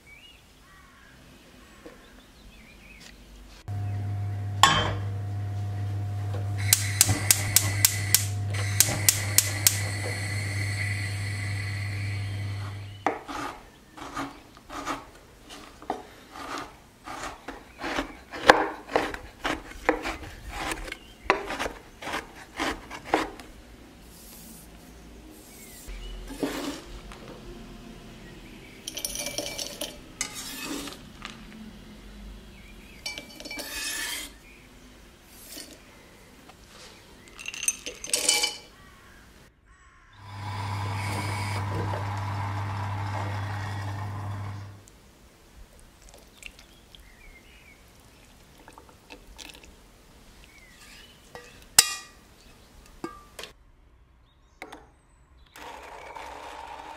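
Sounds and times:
low hum: 0:03.7 - 0:13.0, 0:40.2 - 0:44.9
blade scraping across board: 0:12.1 - 0:23.5, 0:30.2 - 0:31.0, 0:33.5 - 0:34.4, 0:40.3 - 0:44.8.

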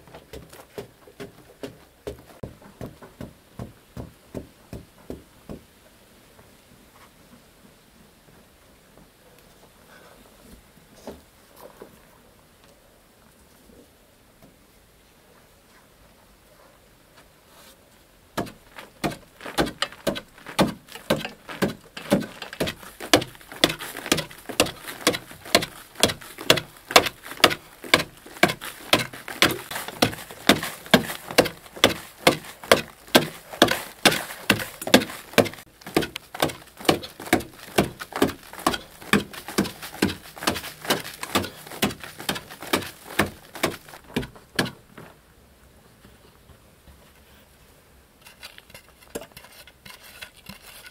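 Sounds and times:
soil falling: 0:18.4 - 0:44.0
digging stick striking earth: 0:18.4 - 0:44.8.

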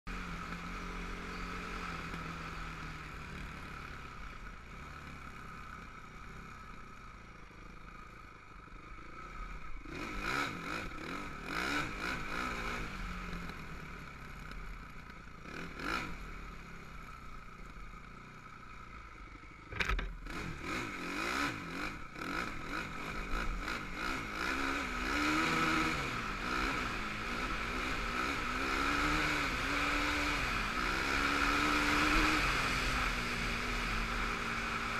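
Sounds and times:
quad engine running: 0:00.1 - 0:34.9
rattles and knocks over rough ground: 0:19.7 - 0:20.2.

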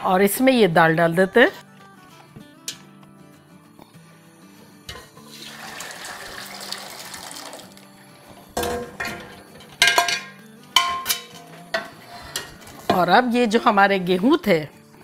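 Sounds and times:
metal pots clanking: 0:04.9 - 0:05.9, 0:08.4 - 0:13.2
liquid pouring and splashing: 0:05.3 - 0:07.8.

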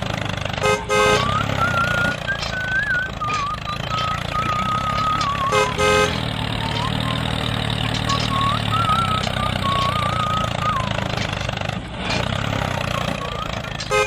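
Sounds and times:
tractor engine running: 0:00.0 - 0:14.0
horn toot: 0:00.6 - 0:02.0, 0:05.5 - 0:06.4
wavering high whistle tone: 0:01.2 - 0:05.8, 0:06.5 - 0:11.0, 0:12.9 - 0:13.8.

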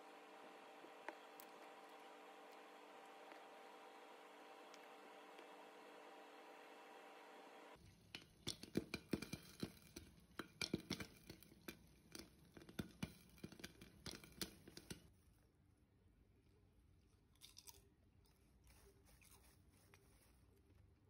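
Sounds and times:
steady hum: 0:00.0 - 0:07.8
popcorn popping in a pan: 0:00.0 - 0:15.1.

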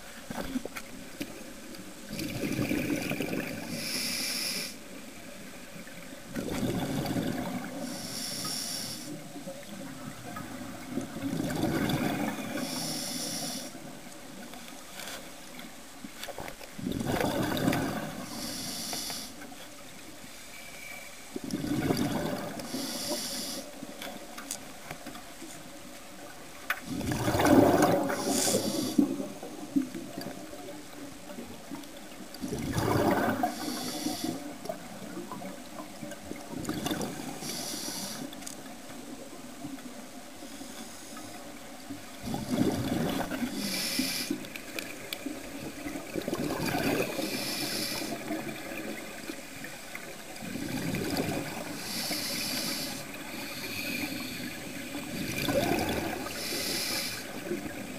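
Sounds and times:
rush of bubbles: 0:02.1 - 0:04.0, 0:06.3 - 0:08.0, 0:10.1 - 0:12.8, 0:16.8 - 0:18.4, 0:21.4 - 0:22.8, 0:26.8 - 0:29.5, 0:32.4 - 0:33.9, 0:34.6 - 0:37.6, 0:42.2 - 0:43.7, 0:44.9 - 0:49.4, 0:50.0 - 0:53.2, 0:54.6 - 0:57.9
regulator inhale hiss: 0:03.7 - 0:05.0, 0:07.7 - 0:09.3, 0:12.5 - 0:13.9, 0:18.2 - 0:19.6, 0:22.6 - 0:24.0, 0:28.0 - 0:29.3, 0:33.4 - 0:34.6, 0:37.3 - 0:38.4, 0:40.4 - 0:41.6, 0:43.4 - 0:44.6, 0:47.1 - 0:48.3, 0:51.6 - 0:54.9, 0:56.2 - 0:57.6.

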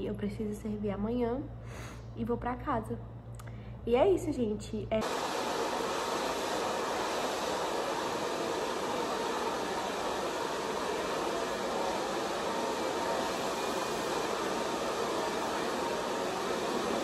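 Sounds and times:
electric blower rushing air: 0:05.0 - 0:17.0.

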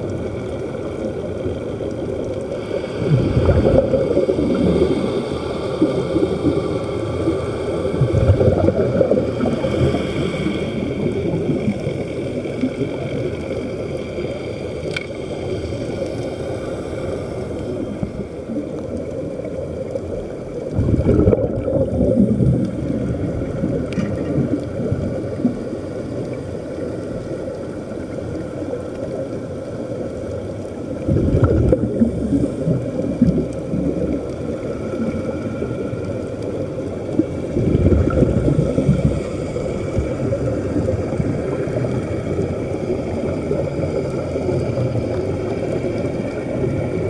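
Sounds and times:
underwater air bubbling rumble: 0:00.0 - 0:47.0.

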